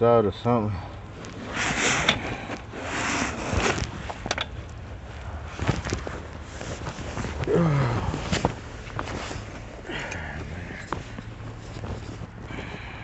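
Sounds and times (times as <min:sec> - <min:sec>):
rustling and scraping movement: 0:01.0 - 0:13.0.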